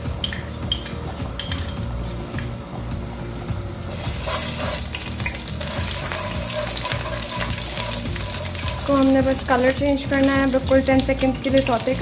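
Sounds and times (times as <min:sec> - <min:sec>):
garlic sizzling in hot oil: 0:03.7 - 0:12.0
spatula stirring in pan: 0:03.9 - 0:10.4.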